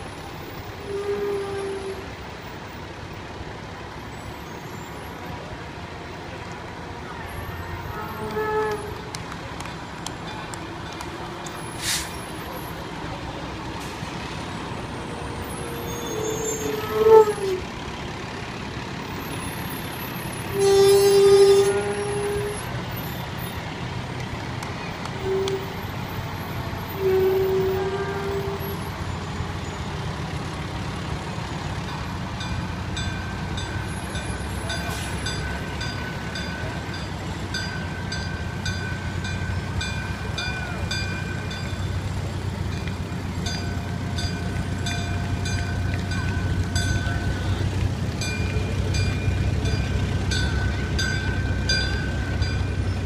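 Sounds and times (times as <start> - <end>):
diesel engines running: 0.0 - 53.0
air horn blasts: 0.8 - 2.2, 7.8 - 9.2, 15.6 - 17.7, 20.4 - 22.7, 25.2 - 25.8, 26.8 - 29.0.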